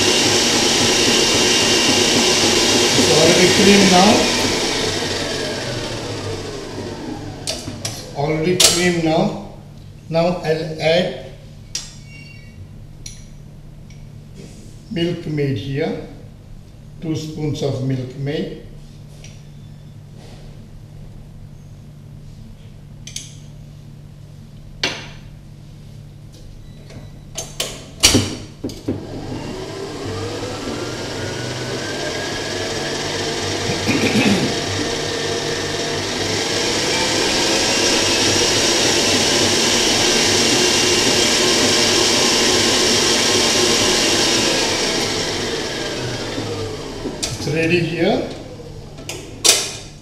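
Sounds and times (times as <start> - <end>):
stand mixer motor whining: 0.0 - 8.1, 28.9 - 49.0.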